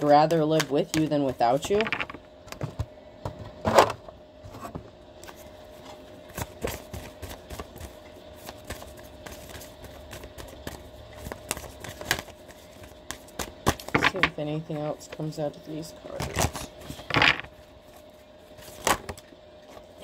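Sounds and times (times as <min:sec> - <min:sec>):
cards being shuffled: 0:06.3 - 0:14.3, 0:16.0 - 0:19.9.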